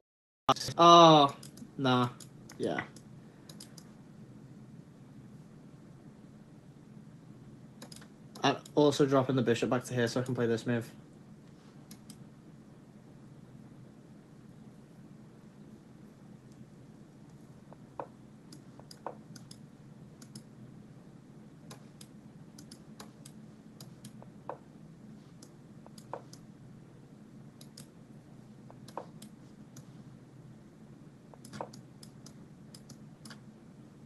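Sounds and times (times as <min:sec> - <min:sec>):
low steady hum: 0:00.5 - 0:34.0
computer mouse clicks: 0:01.3 - 0:03.9, 0:07.8 - 0:08.8, 0:11.8 - 0:12.2, 0:17.3 - 0:19.6, 0:20.2 - 0:20.5, 0:21.7 - 0:24.6, 0:25.3 - 0:26.5, 0:27.6 - 0:27.9, 0:28.6 - 0:30.0, 0:31.3 - 0:33.4.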